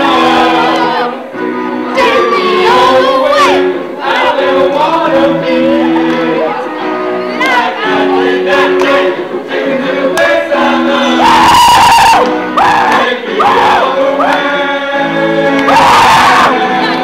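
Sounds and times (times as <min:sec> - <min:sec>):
group of voices singing loudly: 0:00.0 - 0:17.0.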